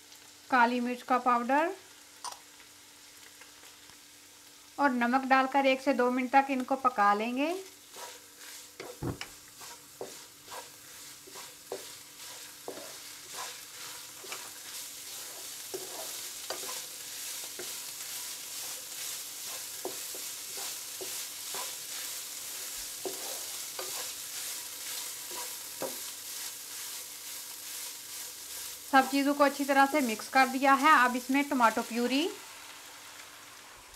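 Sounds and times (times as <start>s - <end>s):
meat sizzling in a frying pan: 0.0s - 33.9s
spatula scraping and tapping pan: 7.7s - 28.8s.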